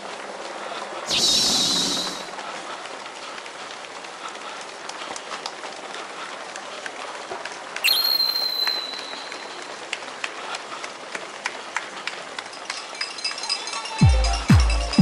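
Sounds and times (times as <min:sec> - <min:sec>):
street noise: 0:00.0 - 0:15.0
high whistle-like tone: 0:01.1 - 0:02.3, 0:07.8 - 0:09.6
runners' footsteps on asphalt: 0:02.2 - 0:13.8.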